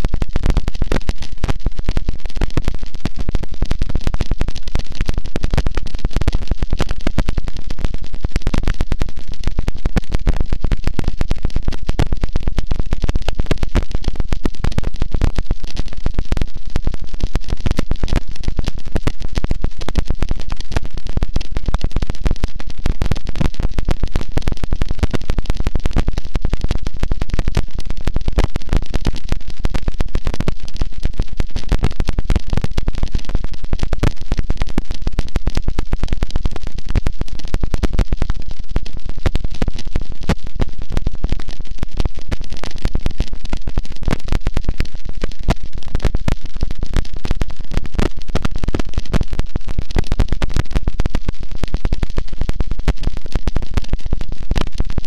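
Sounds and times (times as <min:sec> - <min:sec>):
distorted crackling static: 0:00.0 - 0:55.0.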